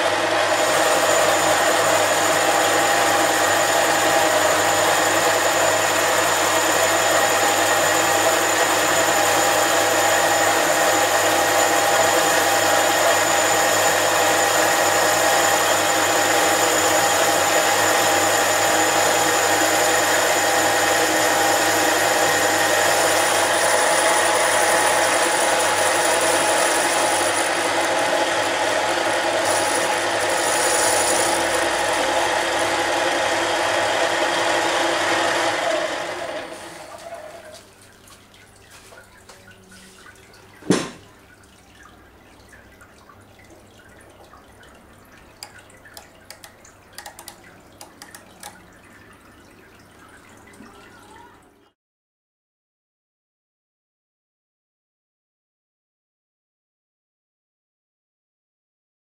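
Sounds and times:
lathe motor whining: 0:00.0 - 0:37.6, 0:46.0 - 0:48.6.

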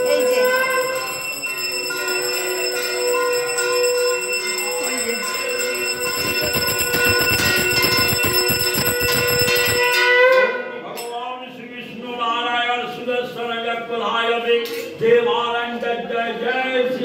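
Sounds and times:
hand bell ringing rapidly: 0:00.0 - 0:10.2.

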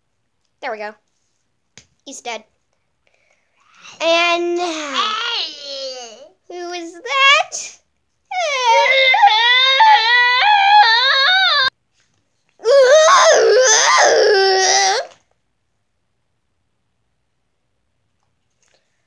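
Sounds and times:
child crying wail: 0:08.3 - 0:11.7, 0:12.6 - 0:15.2.

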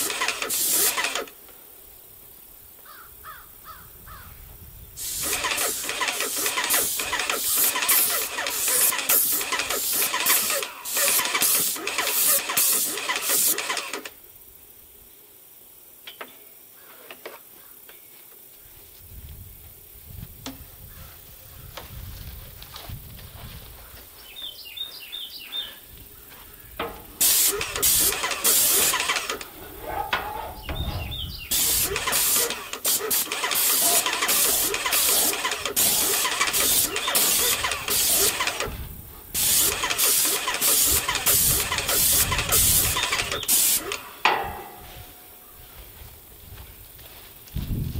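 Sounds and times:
paint sprayer hissing in pulses: 0:00.0 - 0:01.4, 0:04.9 - 0:14.5, 0:25.2 - 0:46.6.

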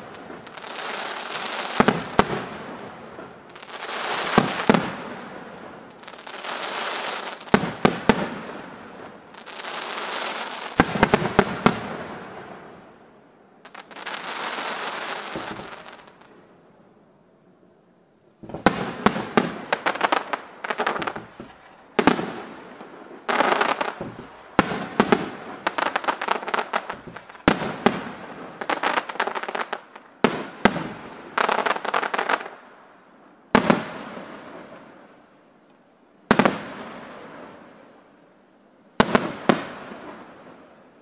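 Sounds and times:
firework crackling: 0:00.0 - 0:16.3, 0:18.4 - 0:32.6, 0:36.3 - 0:38.0
firework shells bursting: 0:18.4 - 0:29.4.

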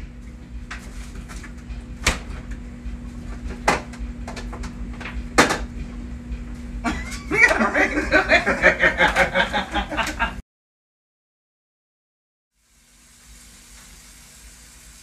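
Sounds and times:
refrigerator hum: 0:00.0 - 0:10.4
sharp knocks in refrigerator: 0:05.4 - 0:05.7.

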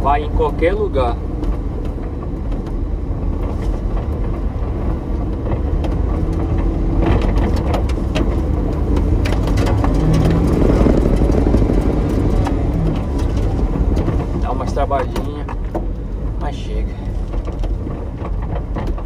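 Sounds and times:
stones clattering against cab: 0:01.4 - 0:19.0
small engine droning under load: 0:09.8 - 0:13.8.

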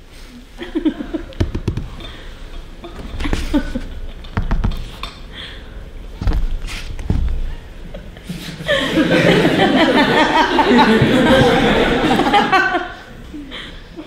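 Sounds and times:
audience laughing: 0:00.6 - 0:04.4, 0:07.8 - 0:14.0
thumps on stage floor: 0:01.4 - 0:02.0, 0:06.2 - 0:07.5.

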